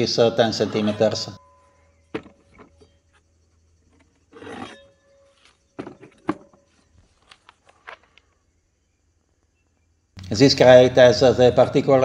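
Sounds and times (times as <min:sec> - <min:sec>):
metallic ring: 0:00.6 - 0:03.4, 0:04.3 - 0:06.9
metal scraping on wood: 0:00.8 - 0:08.0
metal cases knocking on wood: 0:02.1 - 0:02.8, 0:05.8 - 0:06.8.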